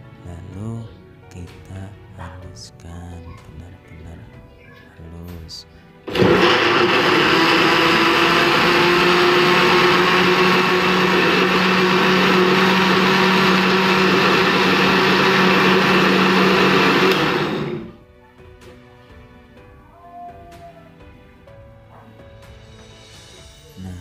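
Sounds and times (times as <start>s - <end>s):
blender running: 6.1s - 18.0s.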